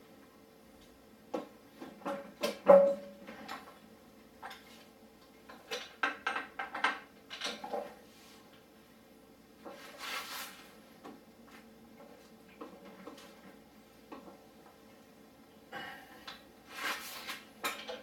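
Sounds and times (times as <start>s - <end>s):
scraping rustle: 9.7s - 10.8s, 16.7s - 17.4s.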